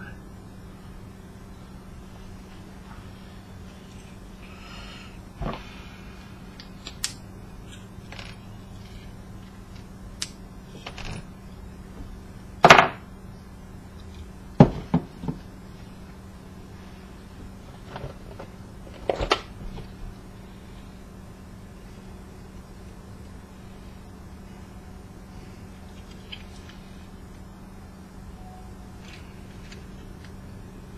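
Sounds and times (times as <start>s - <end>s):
parts clattering: 6.5s - 11.4s, 14.0s - 15.5s, 17.6s - 20.0s.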